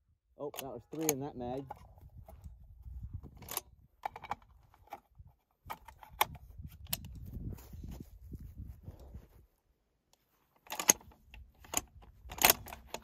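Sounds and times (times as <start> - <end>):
metallic clicks and clacks: 0.4 - 1.8, 10.6 - 13.0.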